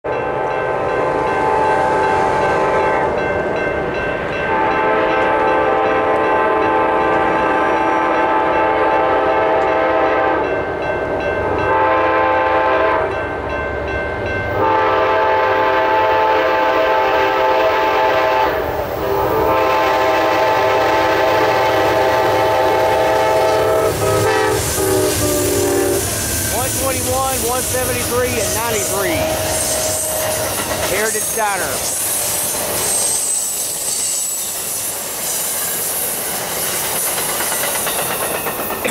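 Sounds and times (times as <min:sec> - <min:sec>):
train wheel noise: 0:00.1 - 0:38.9
locomotive air horn blasts: 0:04.5 - 0:10.5, 0:11.6 - 0:13.1, 0:14.6 - 0:31.8.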